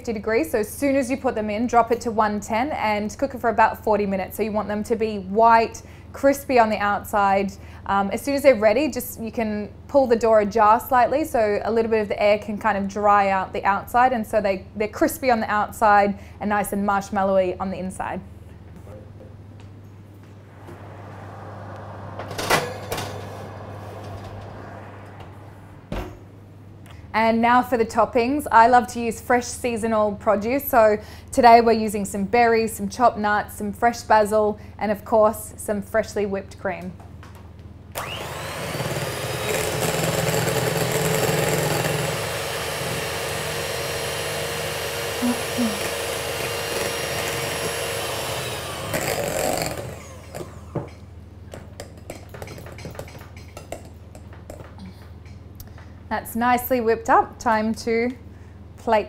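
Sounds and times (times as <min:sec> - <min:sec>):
steady low hum: 0:16.0 - 0:29.4
sharp metallic clank: 0:21.6 - 0:24.8
baking tray sliding onto oven rack: 0:22.0 - 0:24.7
electric hand mixer whipping cream: 0:38.0 - 0:50.6.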